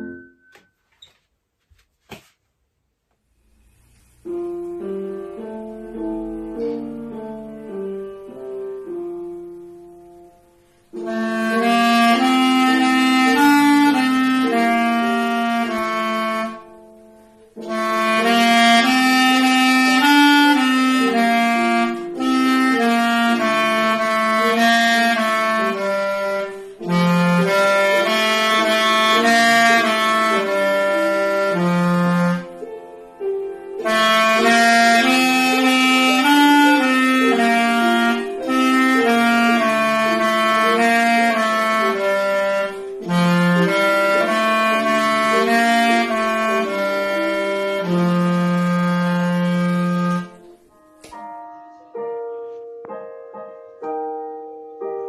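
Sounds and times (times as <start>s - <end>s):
clarinet playing a folk melody: 10.9s - 53.0s.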